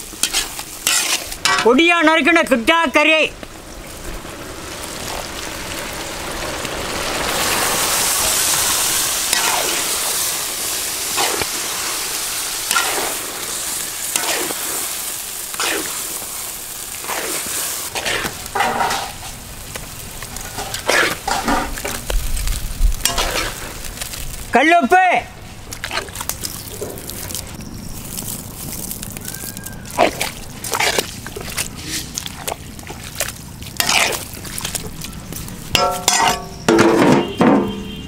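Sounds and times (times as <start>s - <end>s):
meat sizzling in hot oil: 0.0s - 1.7s, 3.4s - 24.6s, 25.7s - 31.5s, 32.1s - 36.6s
spatula scraping pan: 0.1s - 1.7s, 17.0s - 19.3s, 20.4s - 22.0s, 33.8s - 34.4s.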